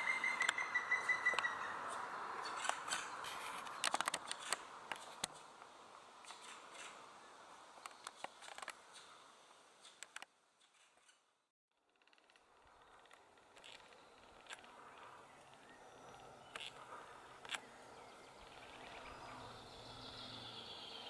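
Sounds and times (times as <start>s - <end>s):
woodpecker calling: 0.0s - 5.5s.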